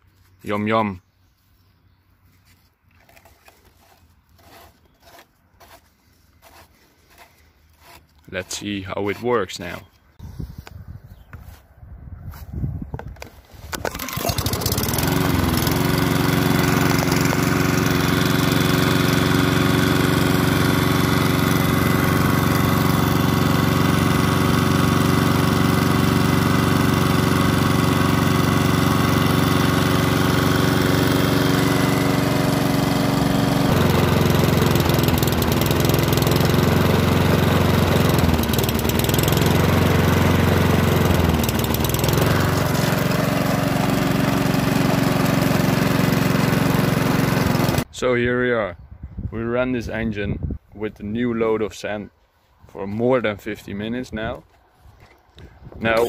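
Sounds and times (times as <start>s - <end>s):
starter rope pull: 3.0s - 9.8s, 13.2s - 47.8s
lawnmower engine running: 13.2s - 47.9s.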